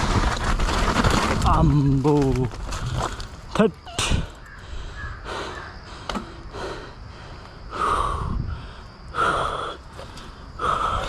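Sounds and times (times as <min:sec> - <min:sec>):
person breathing hard: 0:04.0 - 0:11.0.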